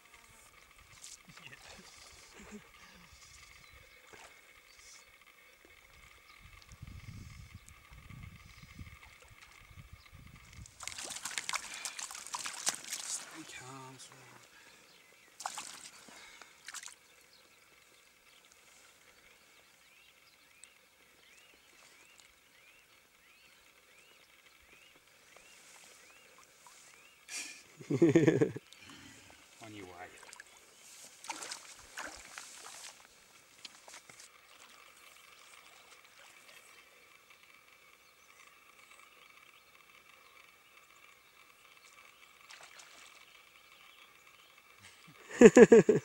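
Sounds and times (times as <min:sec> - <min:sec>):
low steady hiss: 0:00.0 - 0:46.0
water splash: 0:10.8 - 0:13.4, 0:15.4 - 0:16.0, 0:31.2 - 0:32.9.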